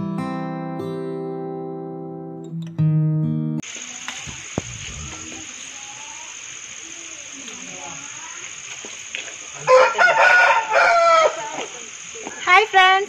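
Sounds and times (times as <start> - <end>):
steady high hiss: 3.6 - 13.0
small birds chirping: 3.7 - 9.7
rooster crowing: 9.5 - 12.0.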